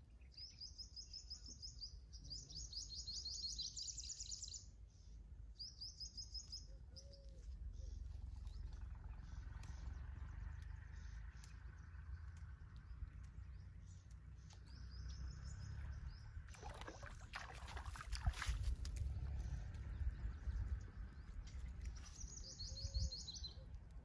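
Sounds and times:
birds chirping: 0:00.0 - 0:24.0
steady low rumble: 0:05.1 - 0:24.0
fish splashing at water surface: 0:16.5 - 0:19.1.

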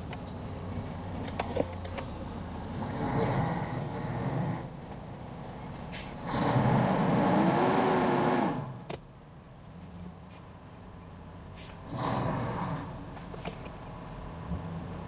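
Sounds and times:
vehicle engine revving and idling: 0:02.5 - 0:04.8, 0:06.2 - 0:08.9, 0:11.8 - 0:15.0.

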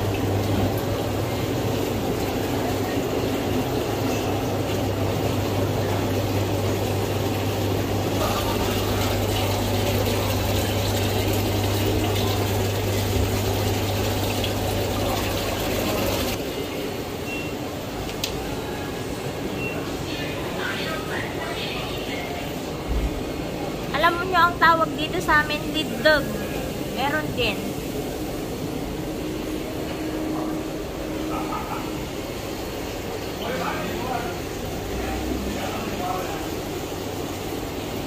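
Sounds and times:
running splashing water: 0:00.0 - 0:16.4, 0:25.0 - 0:38.0
water pump hum: 0:00.0 - 0:38.0.

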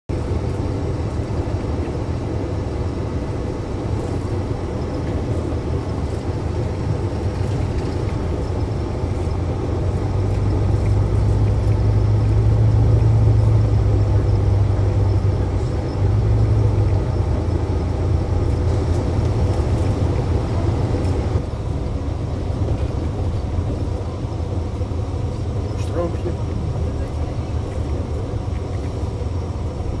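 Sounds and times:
car road and engine rumble: 0:00.0 - 0:30.0.

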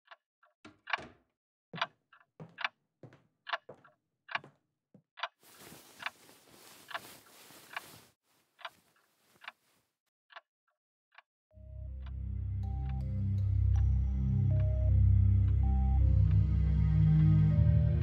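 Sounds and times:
clock ticking: 0:01.8 - 0:04.6
bedding rustling: 0:05.4 - 0:09.8.

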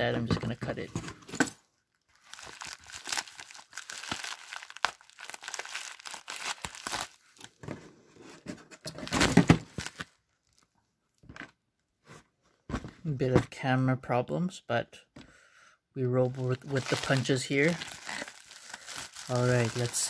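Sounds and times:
paper crinkling: 0:02.1 - 0:07.5, 0:16.2 - 0:20.0.

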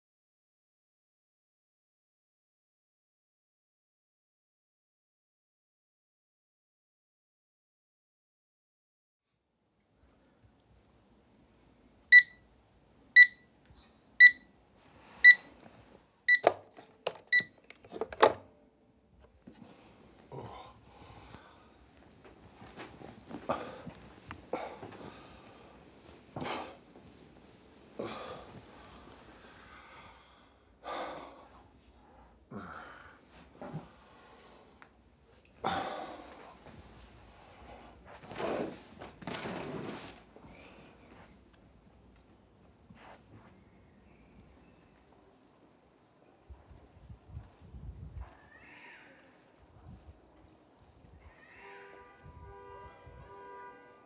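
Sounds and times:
alarm clock beeping: 0:12.1 - 0:12.4, 0:13.2 - 0:13.4, 0:14.2 - 0:14.5
man breathing heavily and sighing: 0:19.5 - 0:21.9, 0:23.3 - 0:25.8, 0:27.9 - 0:34.9, 0:35.6 - 0:36.7.

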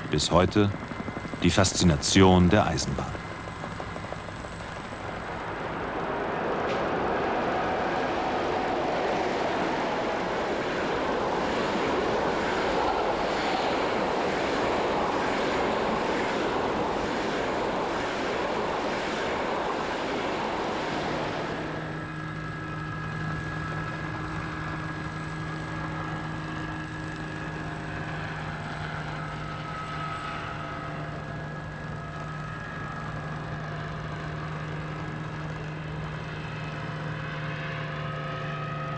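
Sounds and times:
steady hum: 0:00.0 - 0:06.4
train passing at speed: 0:05.4 - 0:21.8.

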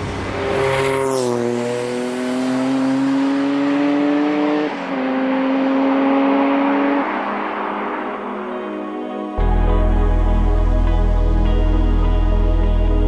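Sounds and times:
racing car engine passing by: 0:00.0 - 0:09.2.

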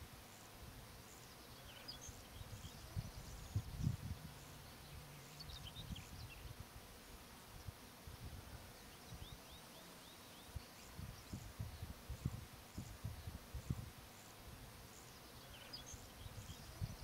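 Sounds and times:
faint high bird chirps: 0:01.1 - 0:06.5, 0:15.0 - 0:17.0
wind buffeting microphone: 0:02.4 - 0:04.4, 0:10.9 - 0:14.0.

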